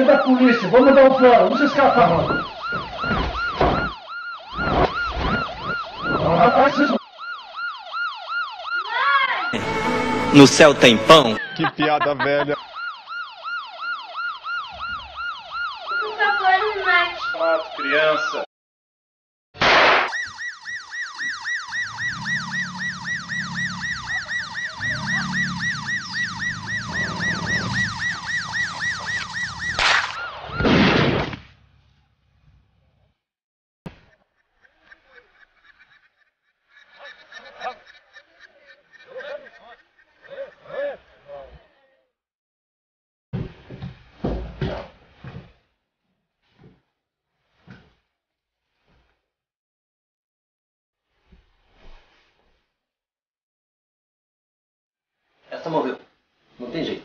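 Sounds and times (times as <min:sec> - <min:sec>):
police siren wailing: 0:00.0 - 0:18.5, 0:20.1 - 0:30.7.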